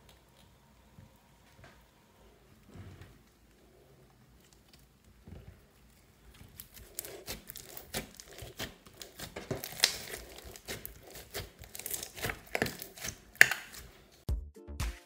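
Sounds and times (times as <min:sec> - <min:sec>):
slime crackling and popping: 0:03.3 - 0:14.2.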